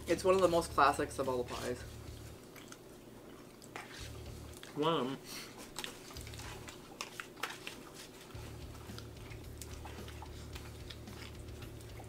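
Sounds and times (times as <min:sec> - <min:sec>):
low steady hum: 0:00.0 - 0:12.0
chewing: 0:01.9 - 0:04.8, 0:05.4 - 0:12.0.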